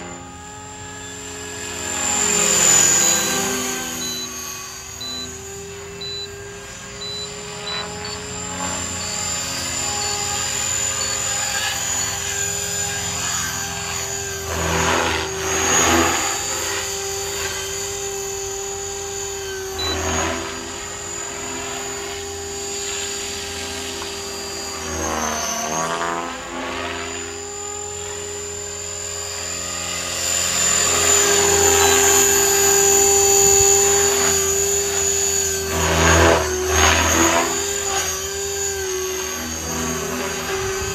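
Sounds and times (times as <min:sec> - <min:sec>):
rc helicopter rotor whine: 0:00.0 - 0:40.9.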